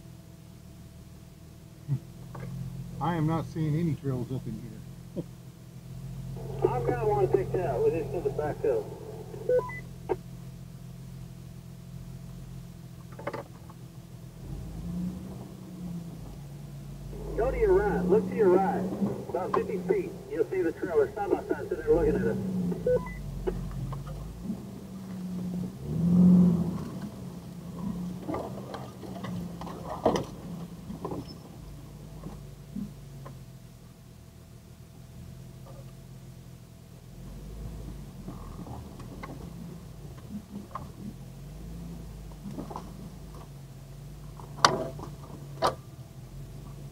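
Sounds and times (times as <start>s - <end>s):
car engine idling: 0.0s - 46.9s.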